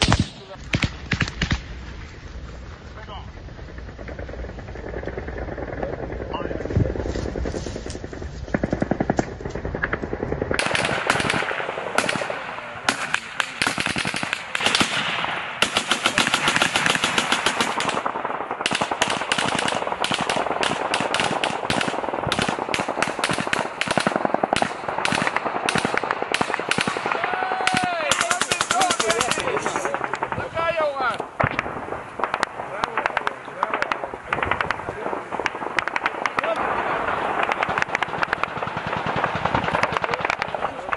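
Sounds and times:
automatic gunfire bursts: 8.5s - 40.9s.

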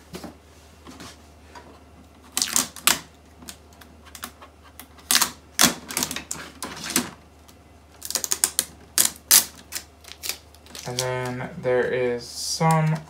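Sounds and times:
tape ripping off plastic: 2.3s - 3.1s, 5.0s - 7.1s, 8.0s - 11.4s
plastic parts handled: 8.0s - 11.4s.

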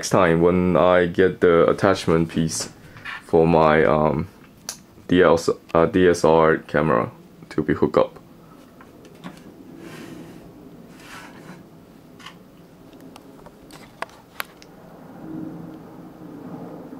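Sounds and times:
soft handling scrapes: 8.5s - 11.7s.

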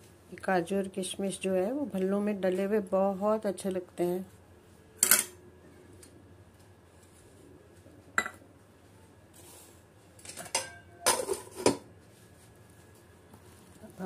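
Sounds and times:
steel utensils clinking: 10.2s - 11.8s.

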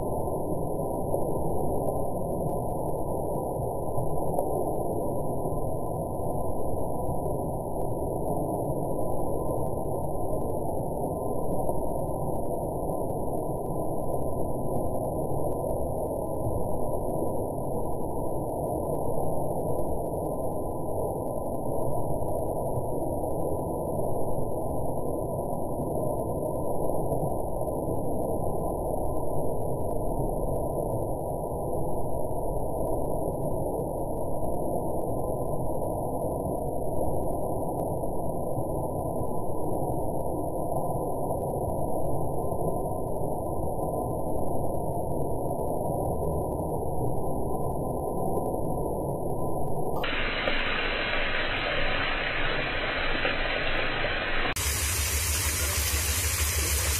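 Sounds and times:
waterfall splashing into pond: 50.0s - 56.9s.

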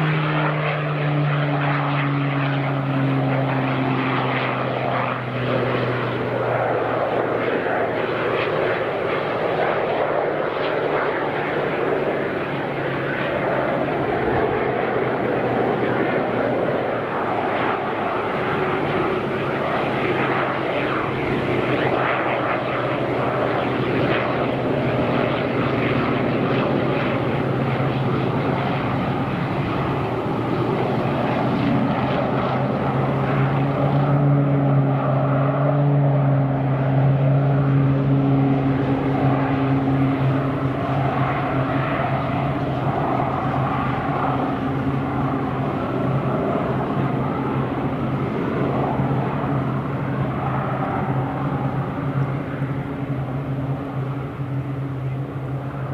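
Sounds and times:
turboprop engine and propeller: 0.0s - 55.9s.

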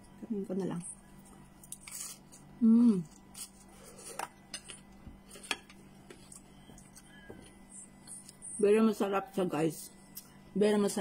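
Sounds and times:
chewing crunchy salad: 1.1s - 8.4s
hummed mm: 2.5s - 4.2s.

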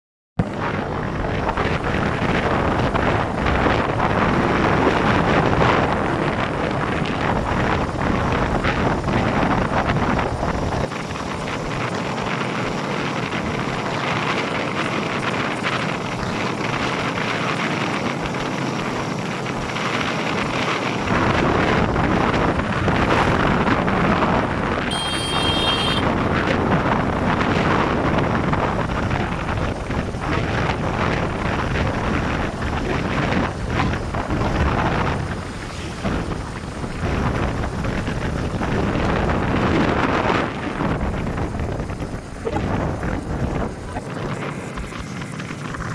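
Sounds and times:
road and engine noise: 0.4s - 45.9s
wind buffeting the microphone: 0.4s - 45.9s
high-pitched beep: 24.9s - 26.0s.

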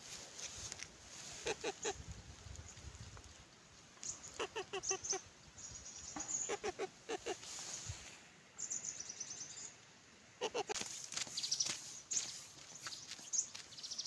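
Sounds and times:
hen clucking: 1.3s - 2.0s, 4.3s - 5.3s, 6.2s - 7.5s, 10.4s - 10.8s
small birds chirping: 1.3s - 7.9s, 8.5s - 14.0s.

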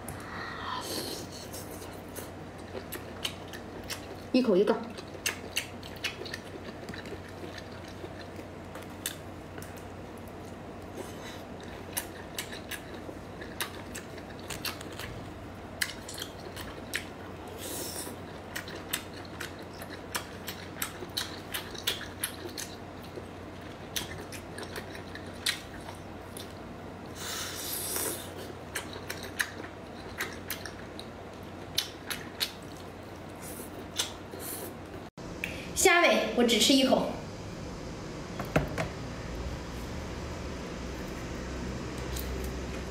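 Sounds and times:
close-up chewing and mouth smacks: 1.5s - 15.2s, 15.8s - 27.2s, 27.9s - 34.7s.

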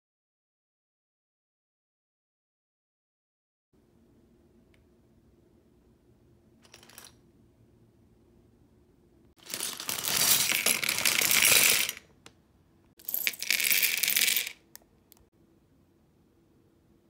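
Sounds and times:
plastic bricks clattering: 9.4s - 12.1s.

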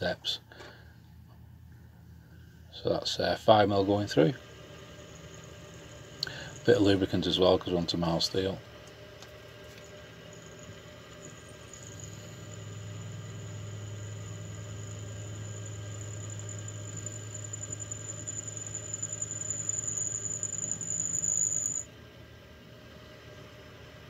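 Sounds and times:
mill motor humming: 3.8s - 7.6s, 8.7s - 21.9s
drill squealing cutting steel: 9.8s - 21.9s.

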